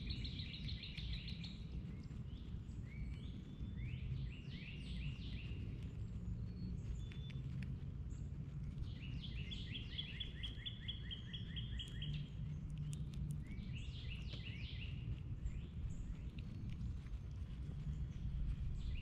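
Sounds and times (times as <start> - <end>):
low background rumble: 0.0 - 19.0
songbird singing: 0.0 - 19.0.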